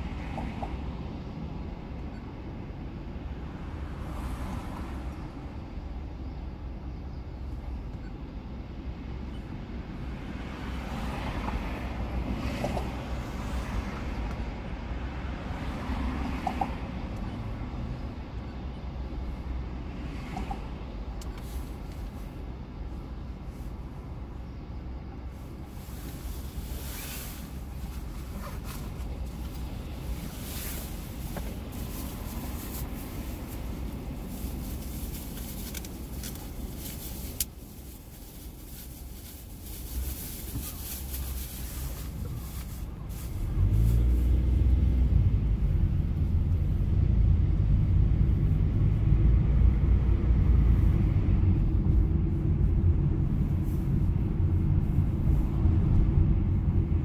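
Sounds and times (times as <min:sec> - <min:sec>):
low rumble inside a car: 0:00.0 - 0:57.0
passing vehicles: 0:00.0 - 0:57.0.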